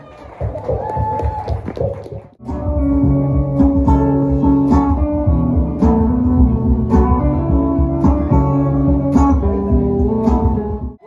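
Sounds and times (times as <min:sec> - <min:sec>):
acoustic guitar: 0:02.4 - 0:11.0
electric guitar: 0:02.4 - 0:11.0.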